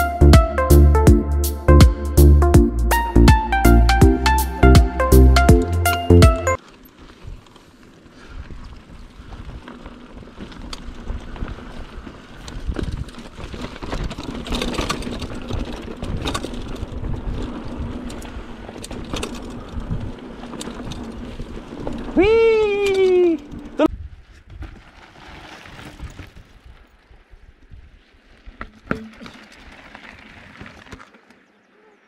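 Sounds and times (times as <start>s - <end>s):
bike rattles and knocks: 5.8s - 26.6s, 28.5s - 31.5s
wind rumbling on microphone: 7.0s - 28.7s.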